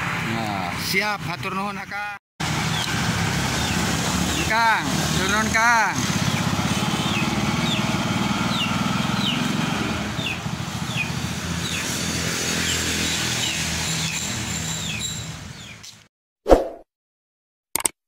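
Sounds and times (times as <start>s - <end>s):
small motorcycle engine: 2.4s - 15.3s.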